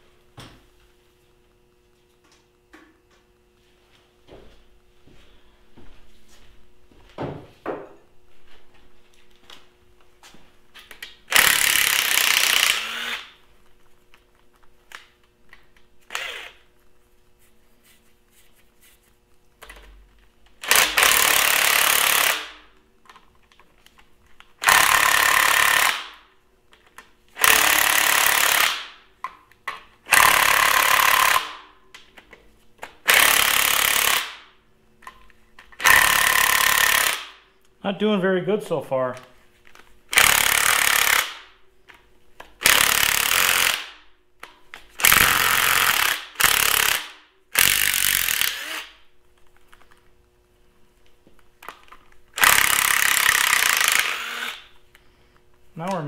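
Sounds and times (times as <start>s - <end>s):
impact wrench hammering on bolts: 20.6s - 22.7s, 27.4s - 29.0s, 30.1s - 31.7s.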